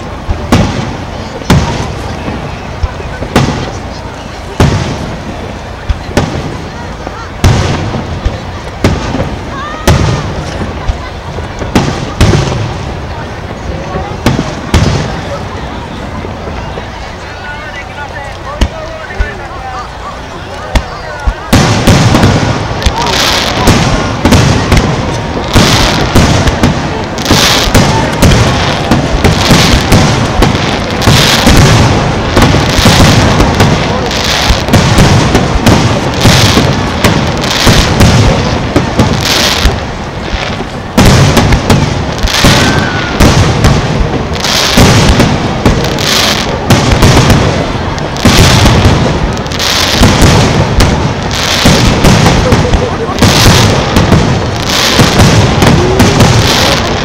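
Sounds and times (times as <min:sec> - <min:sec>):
firework shells bursting: 0:20.5 - 0:57.0.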